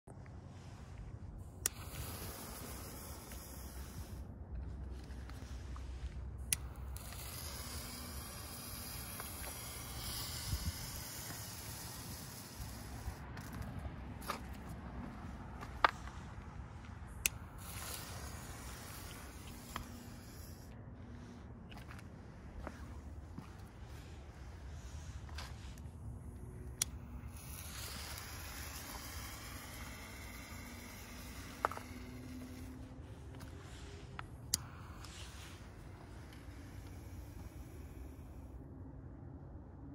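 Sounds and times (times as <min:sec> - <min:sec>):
firework composition hissing: 0:01.7 - 0:04.3, 0:06.7 - 0:13.6, 0:17.4 - 0:20.7, 0:27.1 - 0:32.7.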